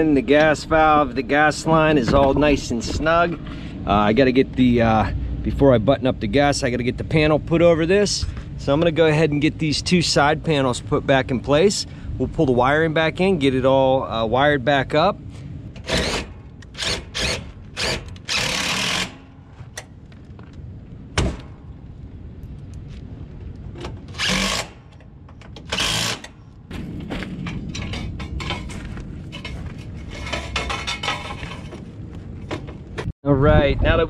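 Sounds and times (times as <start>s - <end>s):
cordless drill driving screws: 15.8s - 19.2s, 24.1s - 24.8s, 25.6s - 26.3s.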